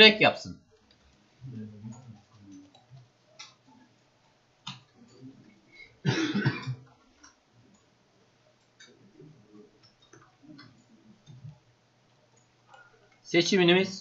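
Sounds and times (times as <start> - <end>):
person coughing: 6.0 - 6.8.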